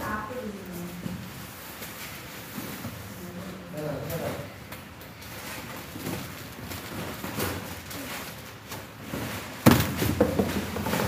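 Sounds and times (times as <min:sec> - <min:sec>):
plastic packets rustling: 0:04.9 - 0:11.0
cardboard boxes knocking: 0:09.6 - 0:11.0.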